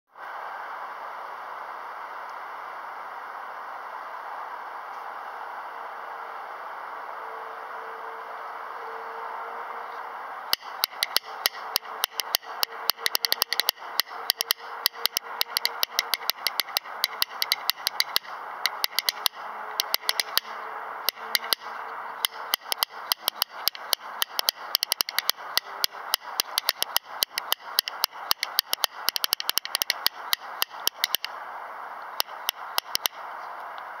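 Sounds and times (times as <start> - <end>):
steady hiss: 0.2 - 8.9
rhythm bones clacking: 10.6 - 31.3, 32.2 - 33.2.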